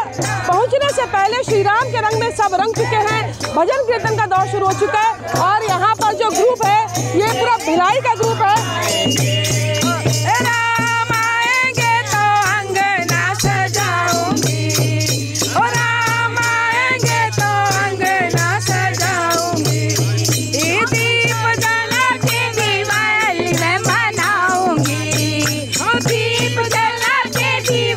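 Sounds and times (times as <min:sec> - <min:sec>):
hand cymbals clashing: 0:00.0 - 0:27.9
hand drum beat: 0:00.0 - 0:27.9
voices singing: 0:00.0 - 0:27.9
hand claps: 0:02.6 - 0:03.7.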